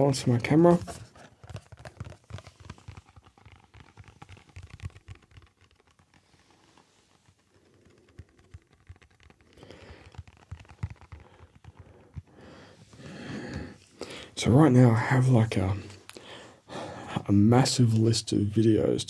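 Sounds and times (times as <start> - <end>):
card clicking and rustling: 0.6 - 14.2.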